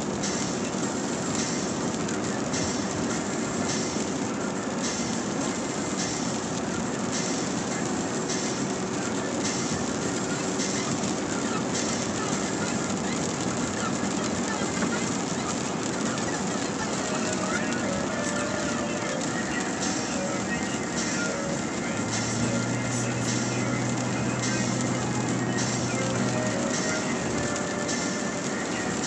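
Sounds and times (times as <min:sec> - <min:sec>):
tyre noise on wet road: 0:00.0 - 0:29.0
windshield wipers swishing: 0:00.0 - 0:29.0.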